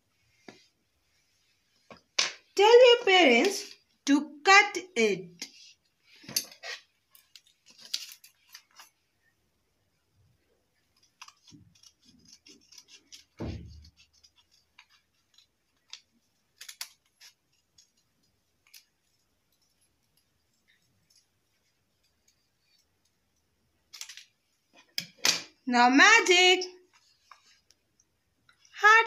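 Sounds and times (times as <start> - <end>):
scissors snipping paper: 10.9 - 19.2.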